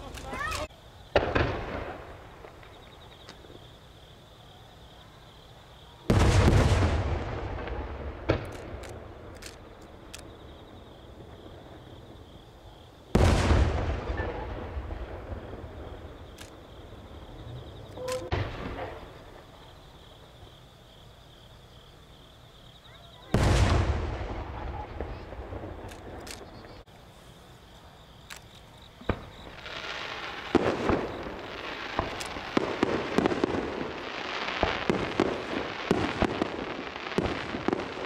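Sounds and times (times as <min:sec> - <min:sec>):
firework pops and crackles: 0:00.0 - 0:03.6, 0:06.1 - 0:10.4, 0:23.3 - 0:26.9, 0:28.3 - 0:38.0
firework booms: 0:00.0 - 0:03.8, 0:06.0 - 0:20.6, 0:23.0 - 0:26.9, 0:28.9 - 0:38.0.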